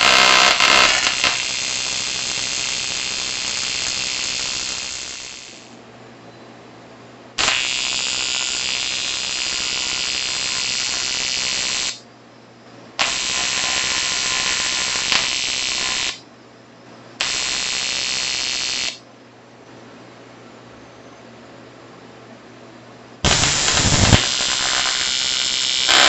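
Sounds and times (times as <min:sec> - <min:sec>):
welding arc buzzing hiss: 0:00.0 - 0:05.8, 0:07.4 - 0:12.0, 0:13.0 - 0:16.2, 0:17.2 - 0:19.0, 0:23.2 - 0:26.0
welding arc crack: 0:00.0 - 0:05.8, 0:07.4 - 0:12.0, 0:13.0 - 0:16.2, 0:17.2 - 0:19.0, 0:23.2 - 0:26.0.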